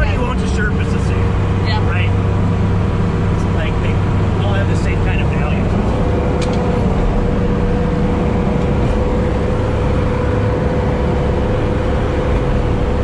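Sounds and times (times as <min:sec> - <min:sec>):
diesel engine droning: 0:00.0 - 0:13.0.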